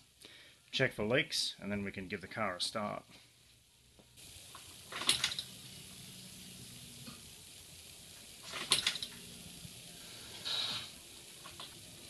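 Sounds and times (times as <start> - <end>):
fuel pump humming: 4.2 - 12.0.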